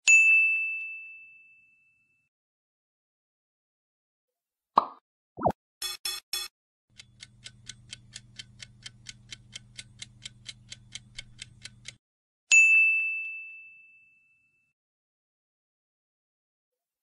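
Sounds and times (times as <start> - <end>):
clock ticking rapidly: 5.8 - 12.0.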